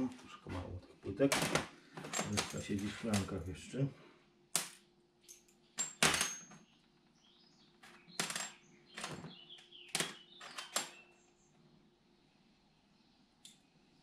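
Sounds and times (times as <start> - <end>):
metal parts clinking: 1.3 - 3.5, 5.2 - 6.7, 7.8 - 9.2.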